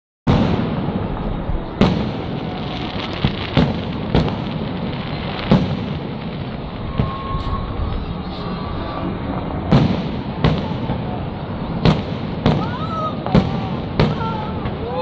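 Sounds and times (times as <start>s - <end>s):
fireworks bangs: 0.3s - 15.0s
fireworks rumble and crackle: 0.3s - 15.0s.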